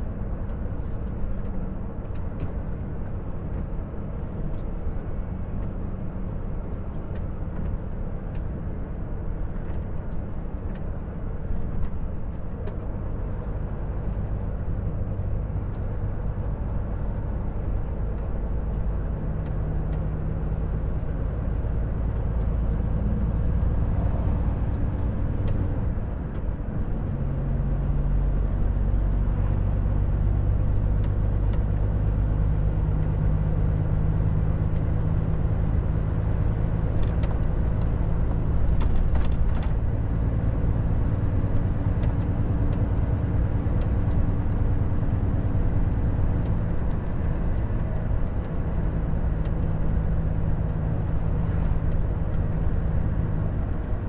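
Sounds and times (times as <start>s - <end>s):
road noise: 0.0s - 54.0s.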